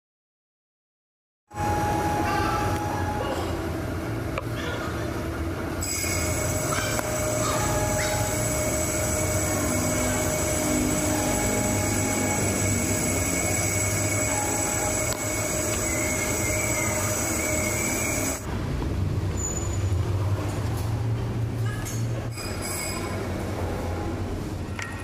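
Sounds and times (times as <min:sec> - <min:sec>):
high machine whine: 0:01.5 - 0:18.5
low machine hum: 0:01.5 - 0:18.6.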